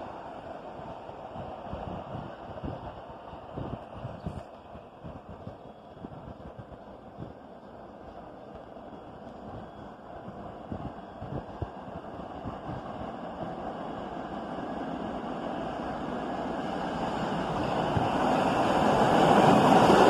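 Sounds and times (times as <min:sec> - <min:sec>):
subway train rumble: 0:00.0 - 0:20.0.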